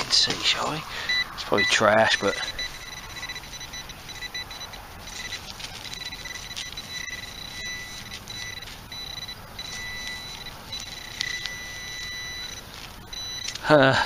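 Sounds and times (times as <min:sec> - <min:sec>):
metal detector pinpointer beeping: 0:01.0 - 0:13.6
faint clicks and soil scrapes: 0:05.0 - 0:09.0, 0:09.6 - 0:13.7.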